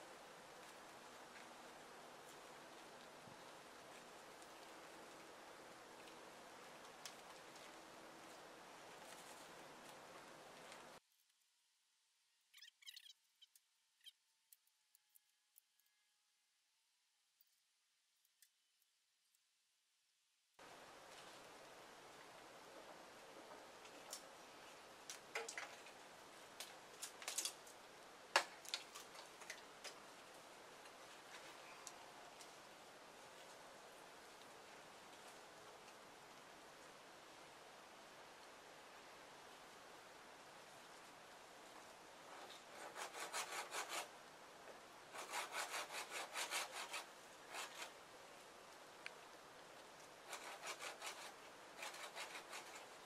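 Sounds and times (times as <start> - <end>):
twigs and bark cracking: 26.6 - 30.0
hand saw cutting branch: 42.6 - 44.1, 45.1 - 48.0, 50.2 - 53.0.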